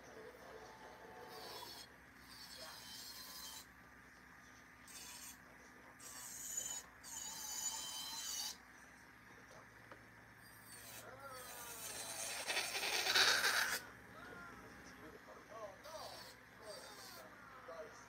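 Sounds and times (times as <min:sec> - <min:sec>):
nail file rasping: 0:10.6 - 0:13.8.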